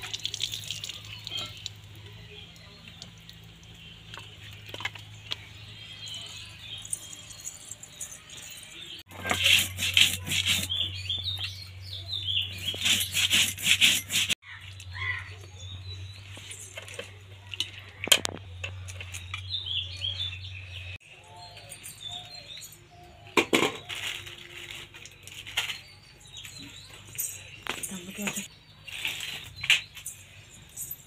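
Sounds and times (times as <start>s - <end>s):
birds chirping: 0.0s - 31.0s
stone grinding wet paste: 9.1s - 11.1s, 12.5s - 14.4s.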